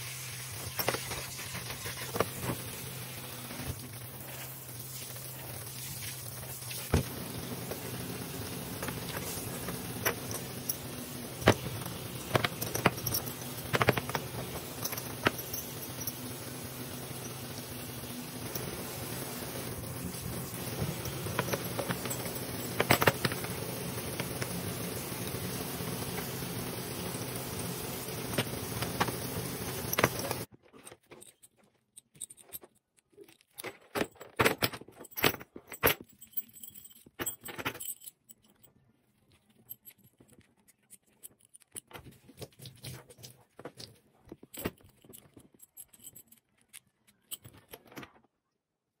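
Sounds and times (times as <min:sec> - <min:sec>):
shower water rushing: 0:00.0 - 0:30.5
metal buckles jangling: 0:08.8 - 0:17.5, 0:20.1 - 0:23.5, 0:31.0 - 0:38.8, 0:44.4 - 0:48.0.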